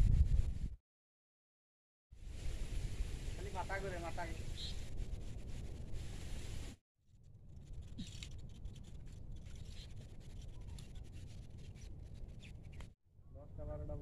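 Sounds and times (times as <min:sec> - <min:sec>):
wind rumbling on microphone: 0:00.0 - 0:00.8, 0:02.2 - 0:06.8
light scratching and clicks: 0:07.6 - 0:12.9.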